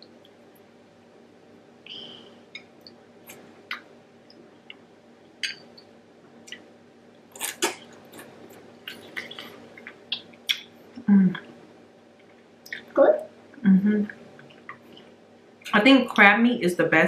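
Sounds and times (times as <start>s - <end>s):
faint steady hum: 0.0s - 17.0s
wet chewing and smacking: 7.4s - 10.7s.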